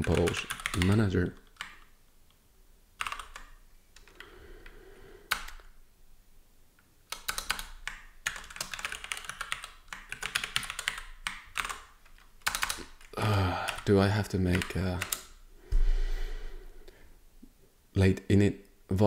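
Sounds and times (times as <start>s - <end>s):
computer keyboard typing: 0.0s - 1.9s, 3.0s - 4.3s, 5.3s - 5.8s, 7.1s - 15.4s.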